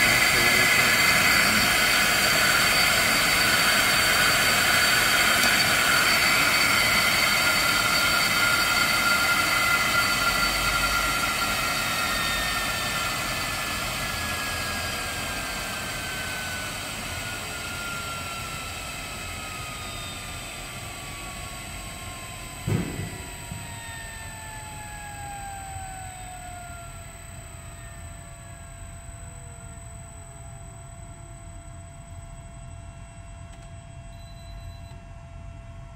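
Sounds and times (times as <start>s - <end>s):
steady high tone: 0.0s - 27.8s
blower motor winding down: 0.0s - 32.4s
thump: 22.6s - 23.6s.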